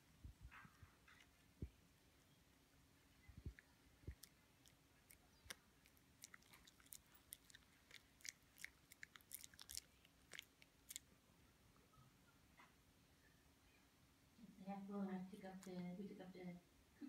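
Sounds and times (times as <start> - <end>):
dog chewing with crunches: 3.4 - 11.1.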